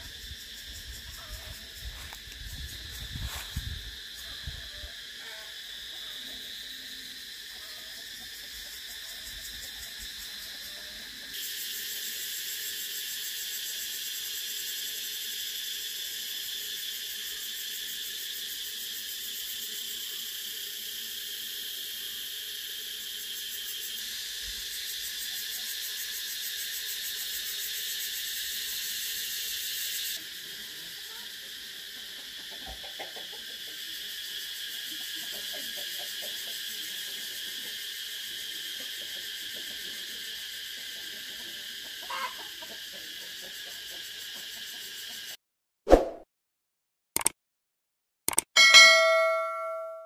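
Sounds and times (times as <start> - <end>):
cicadas buzzing: 0.0 - 45.4.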